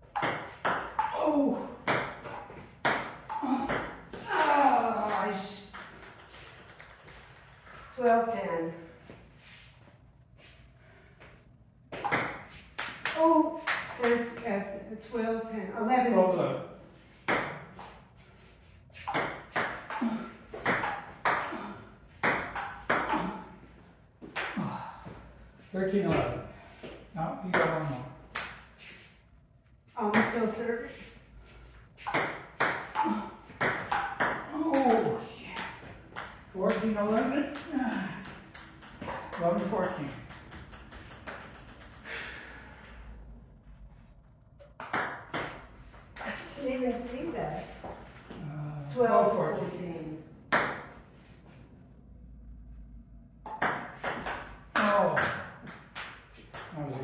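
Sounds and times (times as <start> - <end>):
table tennis ball tapping: 0.1 - 1.2, 22.2 - 23.2, 32.0 - 42.0, 44.6 - 45.6, 53.4 - 56.8.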